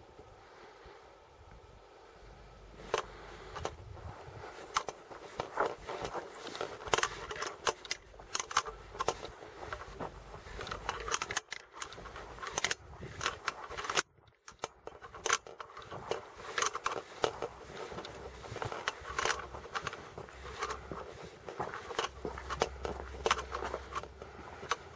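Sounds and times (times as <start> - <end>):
handheld camera rustling and clicking: 2.7 - 24.9
footsteps on grass: 2.8 - 24.9.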